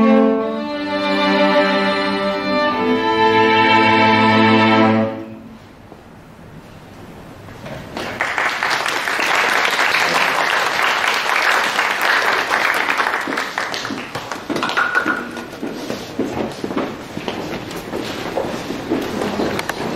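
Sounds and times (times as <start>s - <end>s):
audience applauding: 8.0s - 15.5s.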